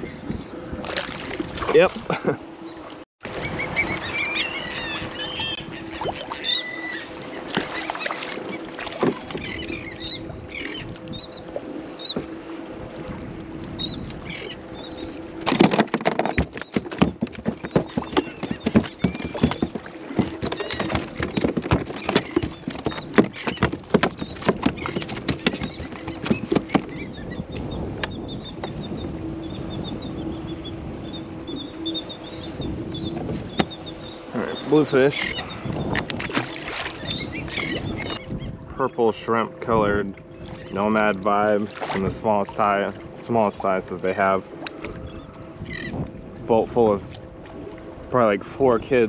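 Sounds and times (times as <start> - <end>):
fish splashing and knocking: 7.5 - 9.6, 15.4 - 27.0, 33.2 - 33.8, 35.9 - 37.0.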